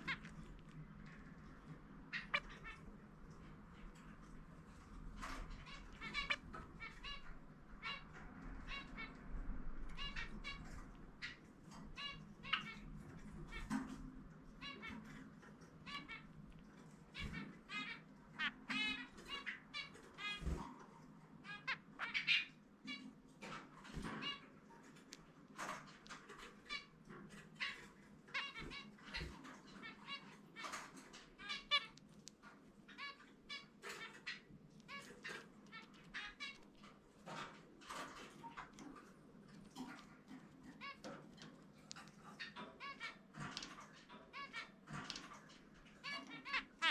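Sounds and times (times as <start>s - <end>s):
finch chirping song: 2.1s - 2.8s, 5.2s - 9.2s, 9.9s - 13.9s.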